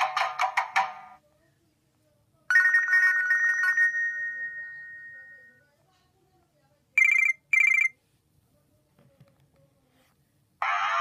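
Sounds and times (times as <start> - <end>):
phone ringtone melody: 2.5 - 5.6, 7.0 - 8.0.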